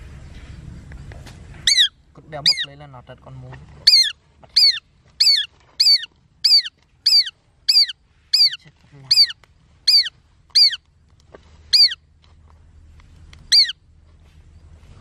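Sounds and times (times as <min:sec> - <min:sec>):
bird calling sharp notes: 0:01.6 - 0:02.8, 0:03.8 - 0:10.9, 0:11.7 - 0:12.1, 0:13.4 - 0:13.8.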